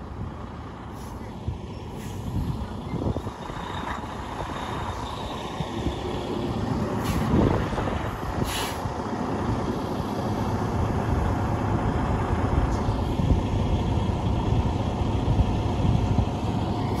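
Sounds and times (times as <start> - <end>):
diesel truck engine rumbling: 0.0 - 17.0.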